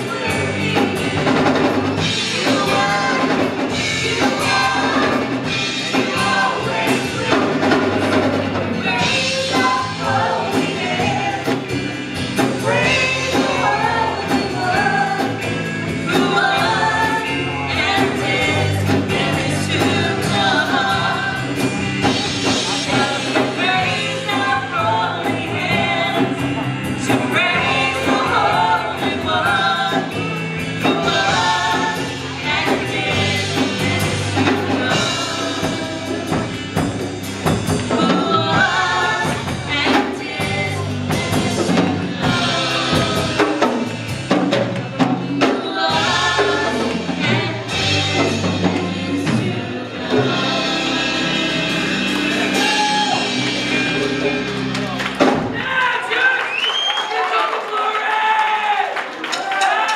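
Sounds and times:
electric guitar: 0:00.0 - 0:55.6
drum kit: 0:00.0 - 0:56.2
voices singing: 0:00.0 - 0:58.1
congas: 0:16.1 - 0:55.8.

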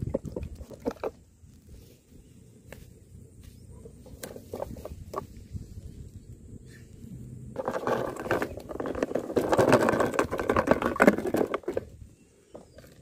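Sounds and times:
stones and dirt crunching: 0:00.0 - 0:01.8, 0:07.6 - 0:13.0.

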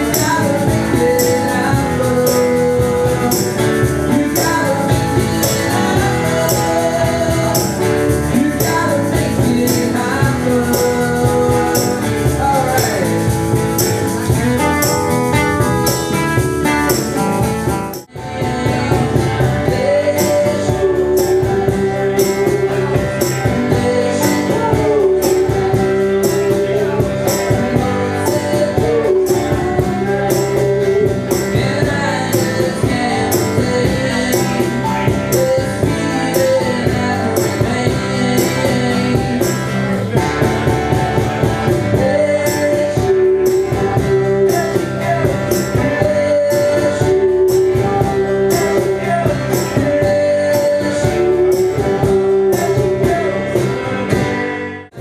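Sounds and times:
male lead vocal singing: 0:00.0 - 0:16.2, 0:18.0 - 0:55.0
steady percussion beat: 0:00.0 - 0:54.3
keyboard: 0:00.0 - 0:55.0
strummed acoustic guitar: 0:00.0 - 0:55.0.

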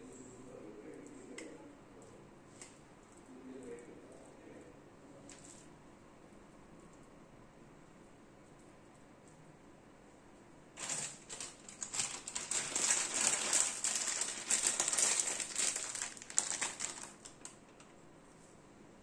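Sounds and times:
plastic packet crinkling: 0:10.8 - 0:17.9.

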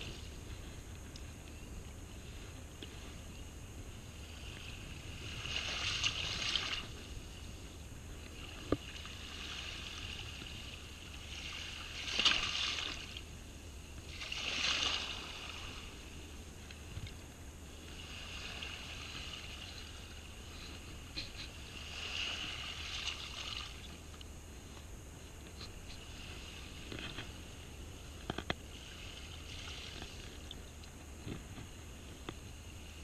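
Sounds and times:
small waves washing on sand: 0:03.8 - 0:13.3, 0:14.0 - 0:17.0, 0:17.7 - 0:24.0, 0:25.7 - 0:30.6.

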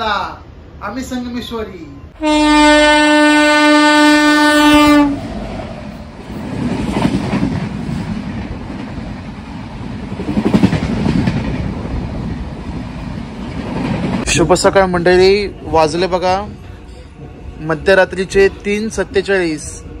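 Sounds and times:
train rumbling past: 0:00.0 - 0:20.0
train horn blast: 0:02.2 - 0:05.3.

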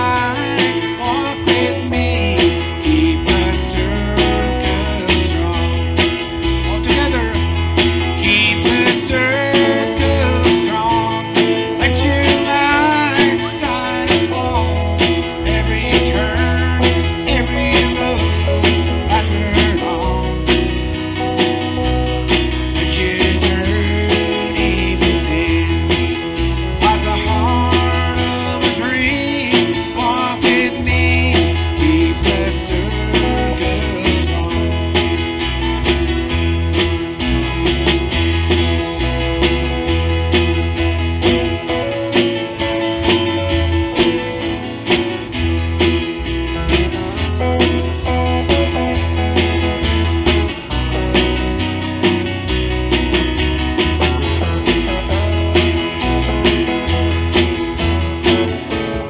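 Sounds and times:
man singing: 0:00.0 - 0:35.5
acoustic guitar strumming: 0:00.0 - 0:59.0
bass guitar: 0:00.0 - 0:59.0
country gospel band playing: 0:00.0 - 0:59.0
drum kit beat: 0:00.0 - 0:59.0.

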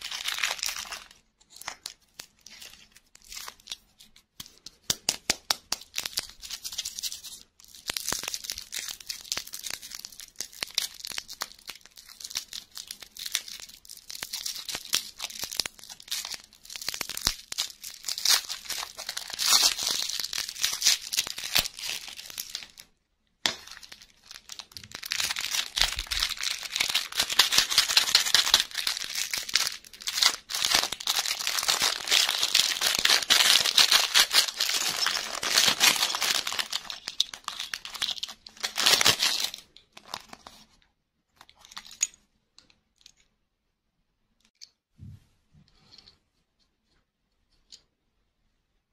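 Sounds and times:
plastic wrapper crinkling: 0:00.0 - 0:42.7
plastic bag crackling: 0:23.5 - 0:40.6.

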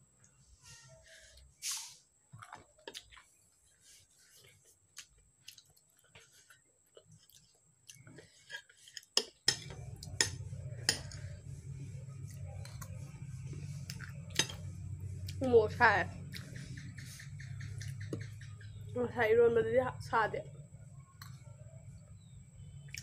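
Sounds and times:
steady low hum: 0:09.4 - 0:23.0.

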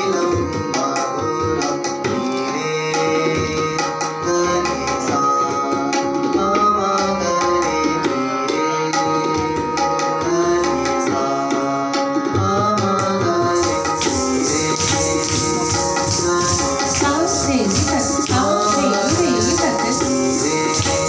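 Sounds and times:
tabla rhythm: 0:00.0 - 0:21.0
sustained melodic tones: 0:13.6 - 0:21.0.

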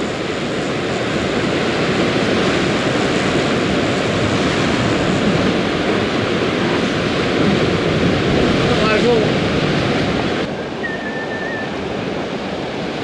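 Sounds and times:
surf breaking on rocky shore: 0:00.0 - 0:13.0.

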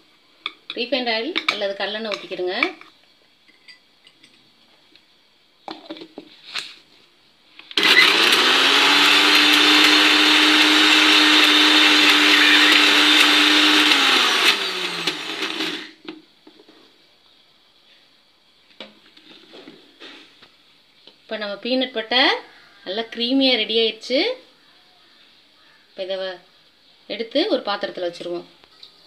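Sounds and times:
mixer grinder motor running: 0:07.7 - 0:16.0.

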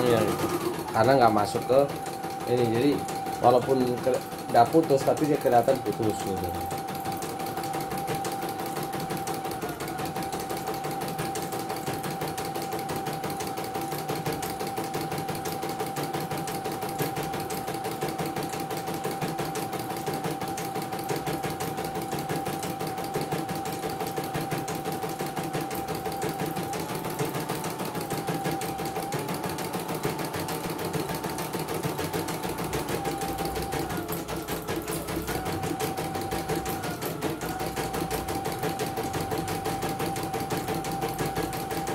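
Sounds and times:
machine motor whine: 0:00.0 - 0:11.4, 0:25.6 - 0:41.9
embroidery machine needle clatter: 0:00.0 - 0:41.9.

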